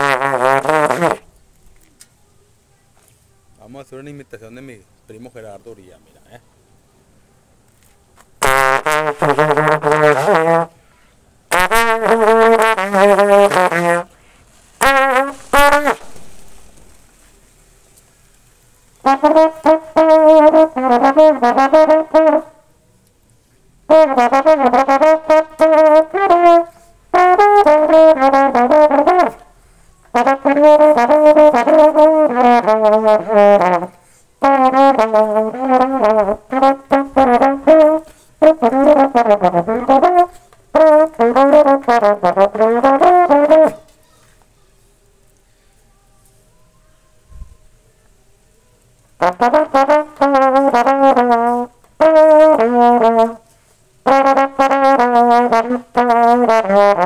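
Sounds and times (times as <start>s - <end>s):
solo valve trombone melody: 0.0s - 1.3s, 8.4s - 10.8s, 11.5s - 16.4s, 19.0s - 22.7s, 23.9s - 29.5s, 30.1s - 43.8s, 49.2s - 57.0s.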